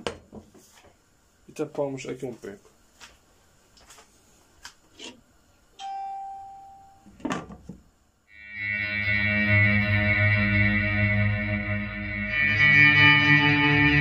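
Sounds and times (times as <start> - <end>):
guitar music with effects: 8.3 - 14.0.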